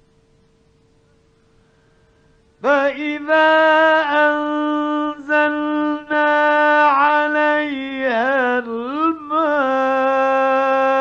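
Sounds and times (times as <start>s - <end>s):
faint hum: 0.0s - 11.0s
man chanting melodically: 2.6s - 11.0s.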